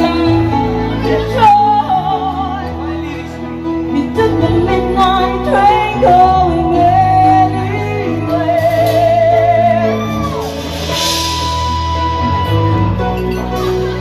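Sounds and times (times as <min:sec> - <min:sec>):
woman singing: 0:00.0 - 0:03.0, 0:03.9 - 0:10.4
live band playing: 0:00.0 - 0:14.0.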